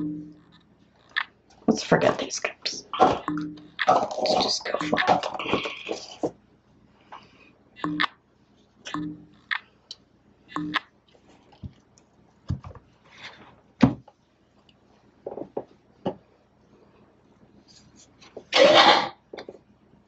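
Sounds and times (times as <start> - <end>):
plastic cups knocking: 3.0 - 6.3.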